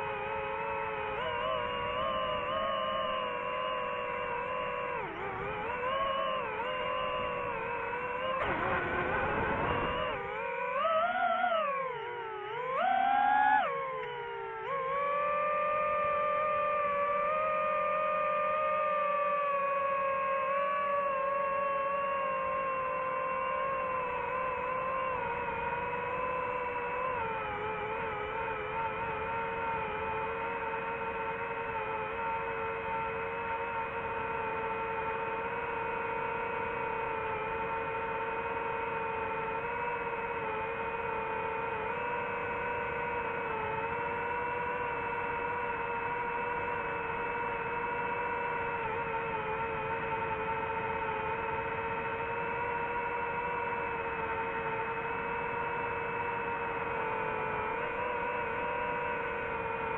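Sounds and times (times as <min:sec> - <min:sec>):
drone propellers whining: 0:00.0 - 0:59.9.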